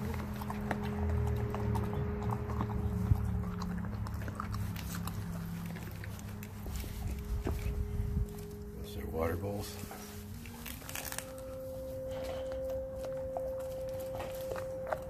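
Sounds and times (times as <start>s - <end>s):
dog gnawing bone: 0.0s - 8.6s, 9.9s - 15.0s.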